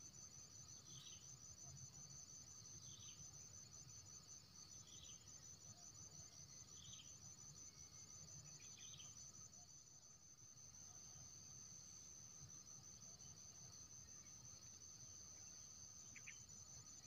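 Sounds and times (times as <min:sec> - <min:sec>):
insect trilling: 0:16.0 - 0:16.7.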